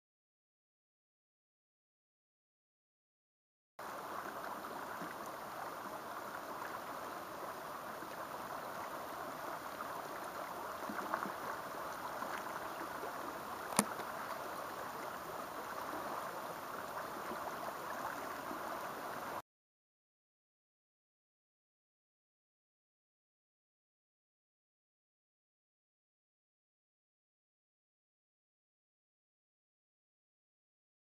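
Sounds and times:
river water rushing: 3.8s - 19.4s
sharp click: 13.7s - 14.0s.

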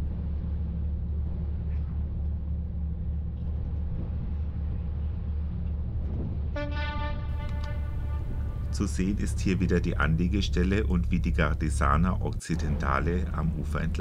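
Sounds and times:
ferry engine rumbling: 0.0s - 14.0s.

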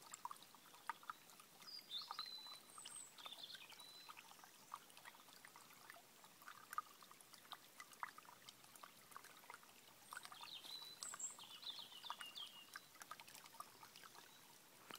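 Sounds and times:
stream babbling over stones: 0.0s - 14.9s
songbird singing: 0.7s - 5.4s, 10.0s - 14.9s.

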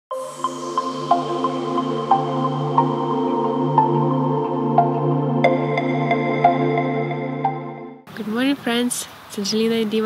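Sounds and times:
ambient synth music: 0.1s - 8.1s.

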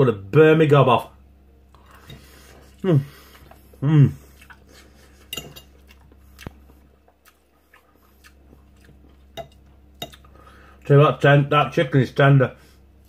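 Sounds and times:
knife and fork clinking on plate: 5.3s - 5.8s.

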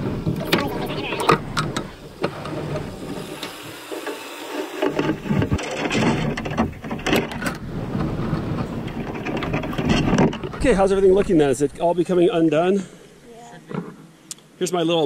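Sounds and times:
knocks and rattles of rigging: 0.0s - 10.9s
wind rumbling on microphone: 5.0s - 12.5s.

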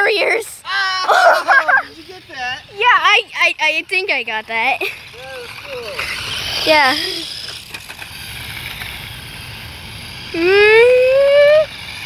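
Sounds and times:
faint outdoor background noise: 0.0s - 12.0s
person giving a rising call: 10.4s - 11.7s.

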